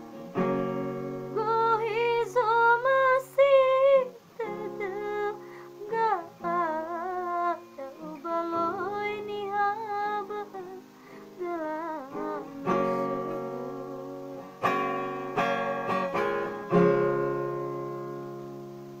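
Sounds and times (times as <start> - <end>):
woman singing with vibrato: 1.2 - 15.0
musical accompaniment: 10.3 - 19.0.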